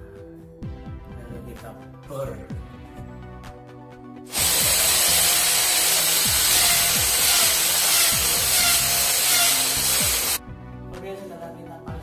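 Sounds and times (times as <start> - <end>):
electric drill boring into tile: 4.3 - 10.4.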